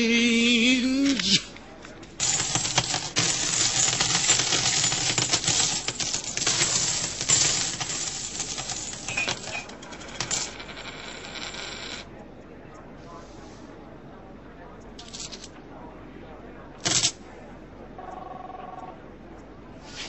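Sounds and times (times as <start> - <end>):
coins clattering down: 2.2 - 12.0, 15.0 - 15.5, 16.8 - 17.2.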